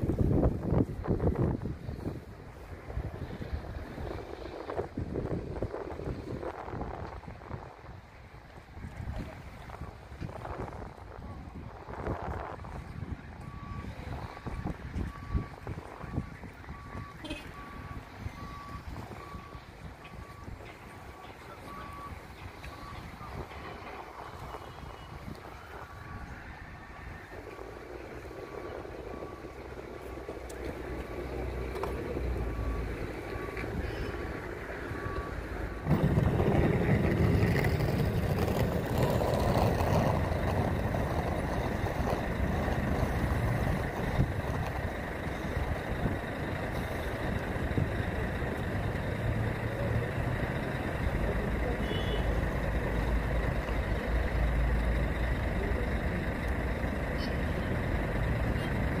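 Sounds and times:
low traffic noise: 0.0s - 59.0s
vehicle rumble: 0.0s - 59.0s
reversing beeper beeping: 12.8s - 45.5s, 49.1s - 53.6s.

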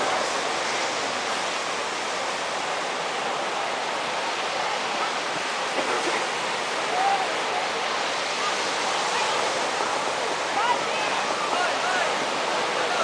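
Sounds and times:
surf breaking on beach: 0.0s - 13.0s
faint crowd voices: 3.2s - 13.0s.

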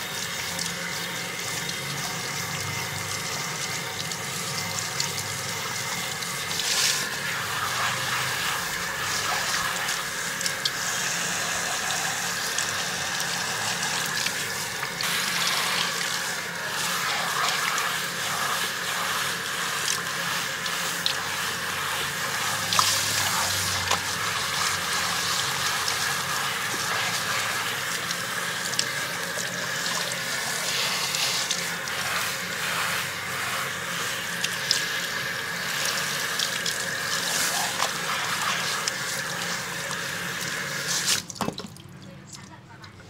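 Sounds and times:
fingers working wet hair: 0.0s - 41.7s
shower sprayer water spraying: 0.0s - 41.8s
water splashing into basin: 41.0s - 42.1s.

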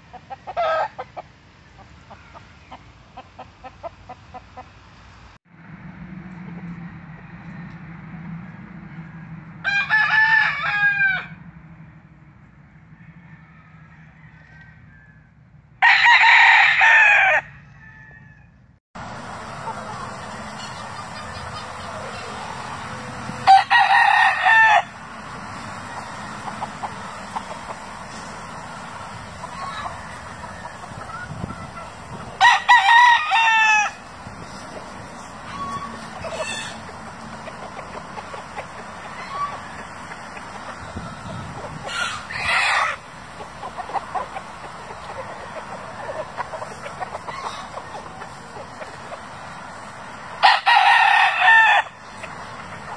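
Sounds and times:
rooster crowing: 0.5s - 1.0s, 9.1s - 11.4s, 12.8s - 18.7s, 21.8s - 34.1s, 35.2s - 40.2s, 40.8s - 43.1s, 50.4s - 52.1s.

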